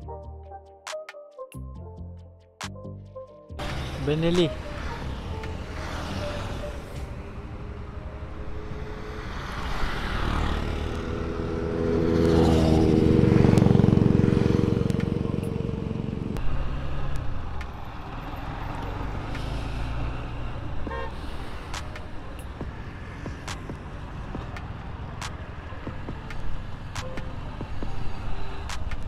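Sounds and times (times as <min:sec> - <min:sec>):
vehicle engine running: 0:10.5 - 0:17.7.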